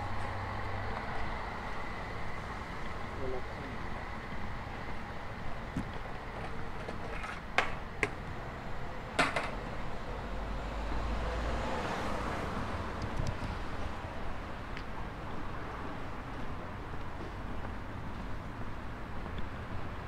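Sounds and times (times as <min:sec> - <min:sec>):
steady traffic noise: 0:00.0 - 0:20.0
vehicle passing by: 0:09.8 - 0:14.2.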